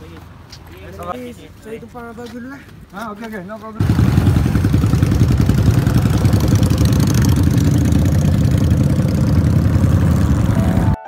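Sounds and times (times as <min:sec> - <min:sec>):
motorcycle engine idling: 0:03.8 - 0:10.9.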